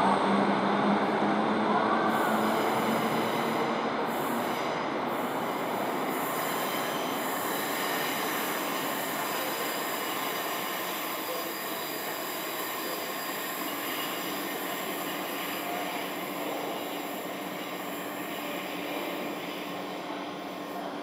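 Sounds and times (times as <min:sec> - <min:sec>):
faint high wheel squeal: 0:05.4 - 0:21.0.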